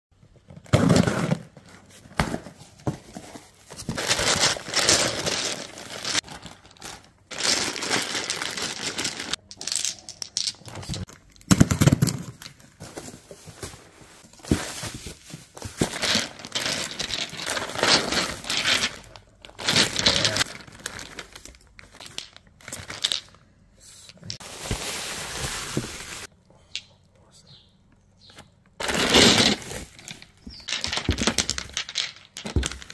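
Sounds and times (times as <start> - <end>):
box thudding: 0.6 - 4.1
bubble wrap and plastic crinkling: 2.8 - 9.9, 12.5 - 23.3, 24.4 - 26.3.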